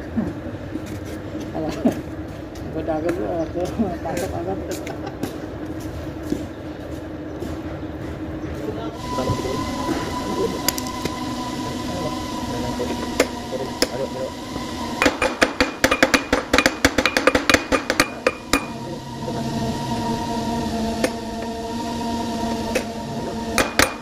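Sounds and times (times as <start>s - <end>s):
steady background hum: 0.0s - 24.0s
hammer tapping on metal punch: 15.1s - 18.7s.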